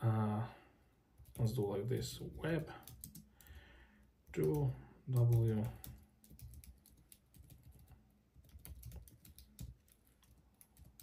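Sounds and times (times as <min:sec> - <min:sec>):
typing on computer keyboard: 0:02.8 - 0:03.5, 0:04.3 - 0:11.0.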